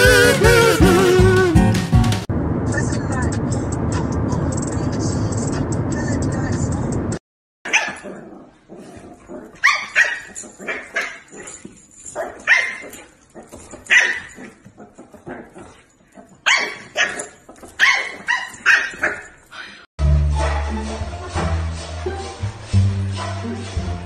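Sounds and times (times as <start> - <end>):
dog barking: 7.7 - 19.4.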